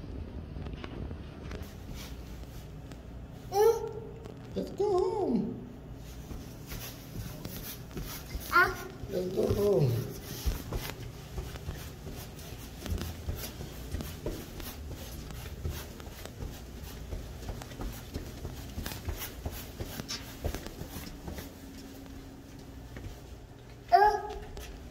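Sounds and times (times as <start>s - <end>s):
soft footsteps on carpet: 0.6s - 3.5s, 4.2s - 24.9s
clothing rustle: 5.9s - 23.8s.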